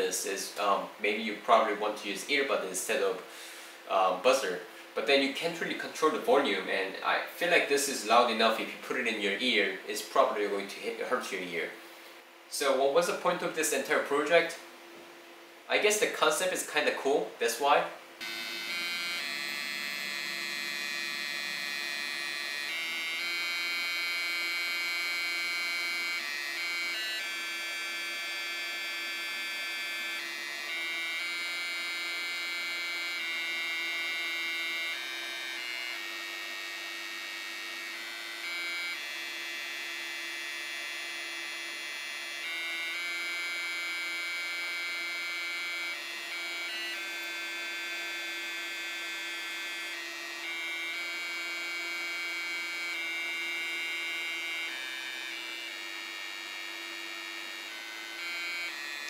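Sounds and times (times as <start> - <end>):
buzzy electronic tones melody: 18.2 - 41.1, 41.9 - 59.0.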